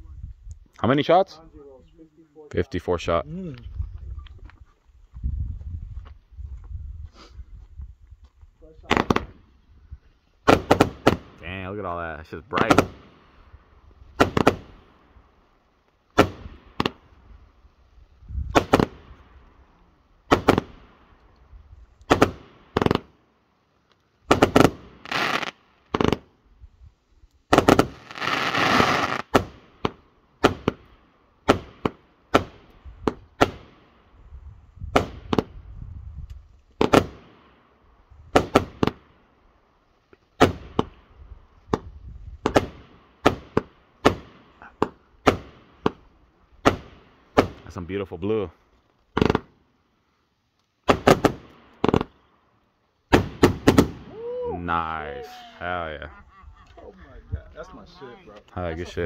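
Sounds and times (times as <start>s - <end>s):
fireworks bangs: 8.8s - 9.5s, 10.4s - 11.7s, 12.5s - 13.4s, 14.1s - 15.1s, 16.1s - 17.2s, 18.4s - 19.4s, 20.2s - 21.1s, 22.0s - 23.2s, 24.2s - 26.3s, 27.5s - 34.0s, 34.9s - 35.6s, 36.8s - 37.6s, 38.3s - 39.1s, 40.4s - 41.1s, 41.7s - 46.0s, 49.1s - 49.6s, 50.8s - 52.2s, 53.1s - 54.3s.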